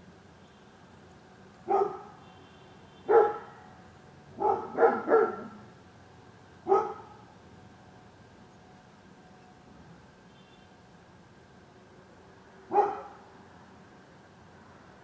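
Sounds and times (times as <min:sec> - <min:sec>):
dog barking: 0:01.7 - 0:02.2, 0:03.1 - 0:03.7, 0:04.4 - 0:05.6, 0:06.7 - 0:07.2, 0:12.7 - 0:13.2.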